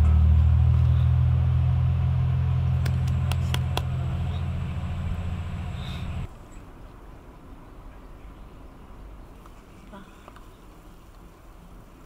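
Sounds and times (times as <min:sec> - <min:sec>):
low bass chord: 0:00.0 - 0:06.3.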